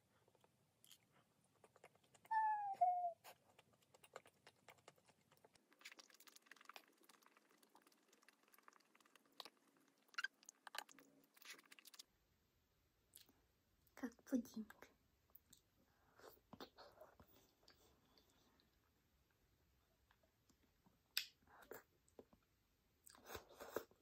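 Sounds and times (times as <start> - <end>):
wet chewing and smacking: 0.2 - 2.3, 3.2 - 12.1.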